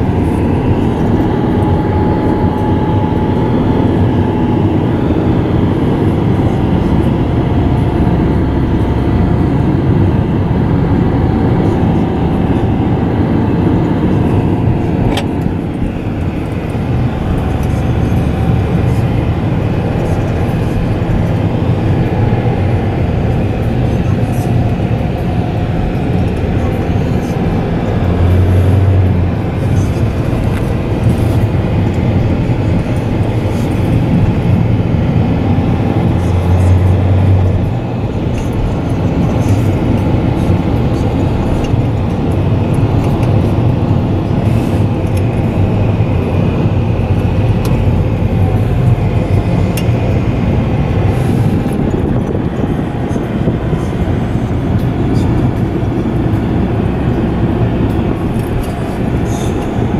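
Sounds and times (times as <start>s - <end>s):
engine and tyre rumble: 0.0s - 59.9s
low hum: 0.0s - 59.9s.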